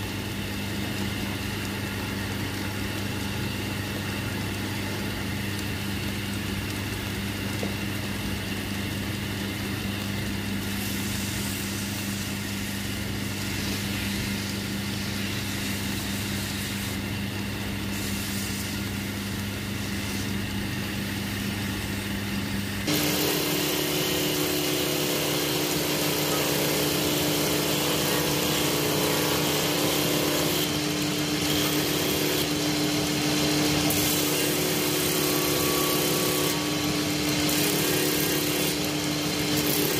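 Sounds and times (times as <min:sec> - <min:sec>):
higher-pitched machine hum: 0:10.6 - 0:39.9
lathe motor running: 0:22.8 - 0:39.9.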